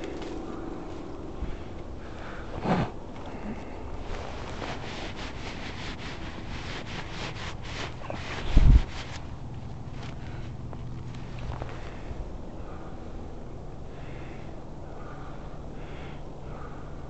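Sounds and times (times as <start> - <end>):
footsteps through dry grass: 0.0 - 1.9, 3.6 - 12.3
dead stems rustling underfoot: 0.0 - 13.4
wind buffeting microphone: 7.9 - 14.3.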